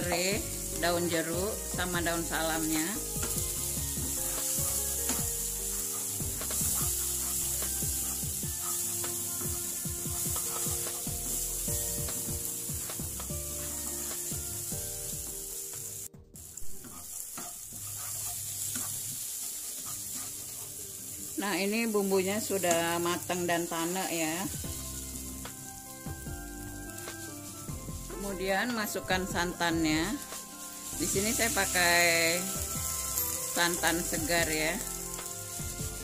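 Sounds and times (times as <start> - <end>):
paste sizzling in oil: 0.0 - 36.0
wooden spatula scraping pan: 3.3 - 11.5, 16.7 - 20.9.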